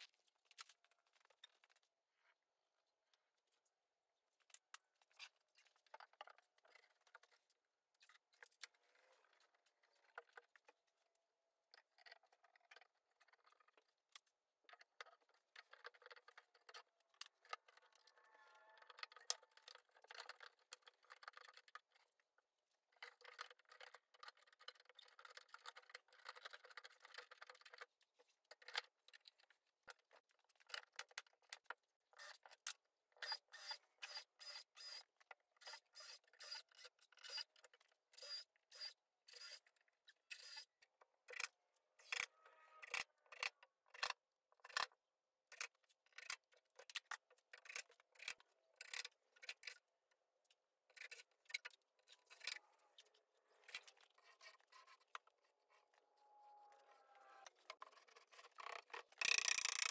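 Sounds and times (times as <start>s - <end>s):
clicks knocks and scraping: 50.9s - 56.0s, 57.0s - 59.9s.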